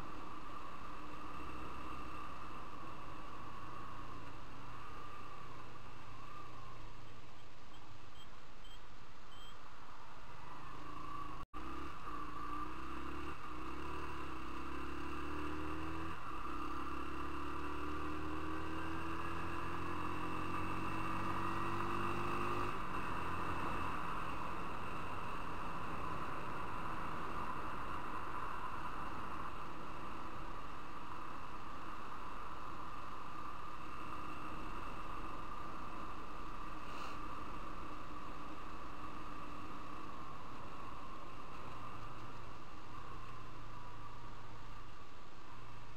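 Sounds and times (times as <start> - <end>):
wind and road noise: 0.0 - 45.9
motorcycle engine accelerating: 10.6 - 44.8.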